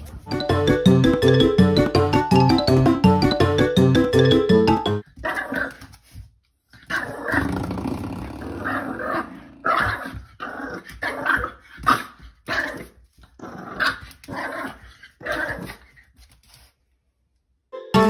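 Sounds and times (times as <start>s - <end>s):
puppy growling barks: 8.5s - 15.8s.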